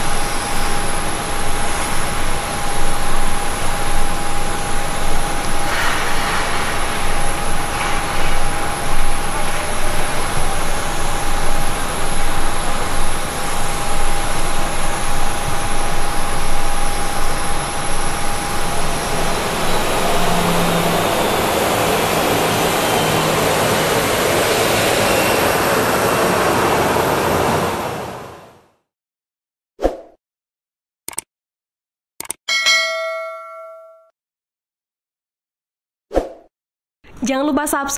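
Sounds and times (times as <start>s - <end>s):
jet engines rushing: 0.0s - 28.6s
jet engine whine: 0.0s - 28.8s.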